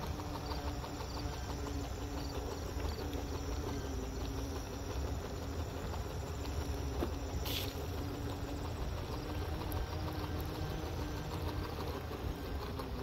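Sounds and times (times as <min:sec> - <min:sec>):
faint motor whine: 0:00.0 - 0:13.0
wheels rumbling on concrete: 0:00.0 - 0:13.0
short hiss: 0:07.4 - 0:07.8.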